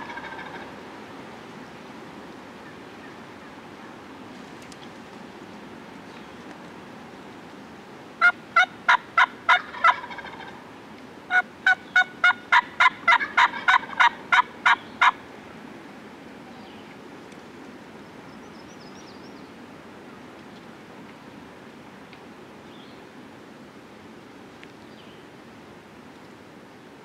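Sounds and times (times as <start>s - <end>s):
wild turkey yelping: 0.0s - 0.7s, 8.2s - 10.6s, 11.3s - 15.2s.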